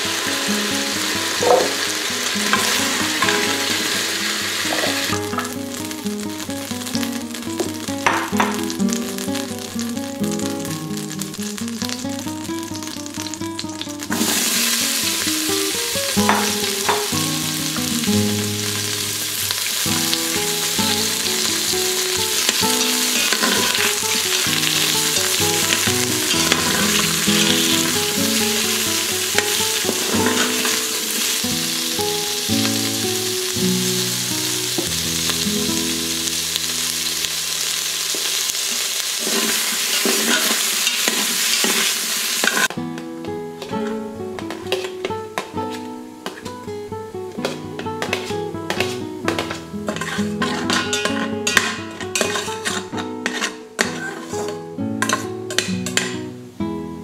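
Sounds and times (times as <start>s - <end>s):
peppers sizzling in hot oil: 0.0s - 56.6s
spatula stirring in pot: 44.7s - 45.0s, 47.4s - 56.2s.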